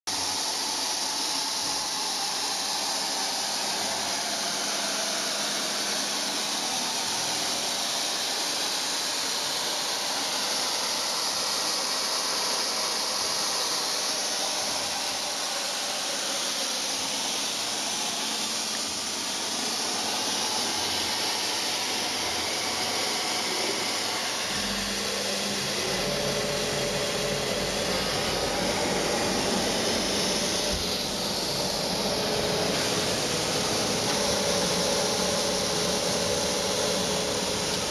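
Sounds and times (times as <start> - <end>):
low hum with steady tones: 17.6 - 37.9
compressed air hissing: 18.3 - 37.9.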